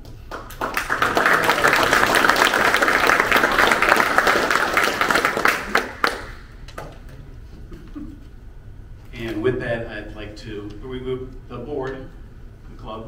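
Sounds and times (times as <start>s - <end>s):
audience applauding: 0.3s - 6.6s.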